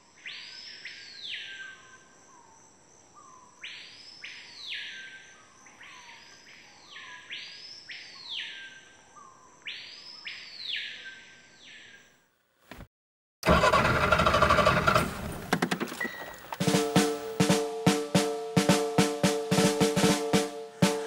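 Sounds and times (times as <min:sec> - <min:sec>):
bird whistling calls: 0:15.9 - 0:17.5.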